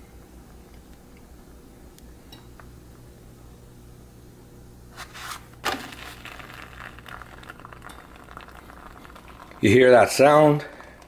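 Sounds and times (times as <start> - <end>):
tortilla scraping on griddle: 4.9 - 7.0
tortilla crackling on griddle: 5.0 - 9.6
tortilla slapping down: 5.0 - 9.6.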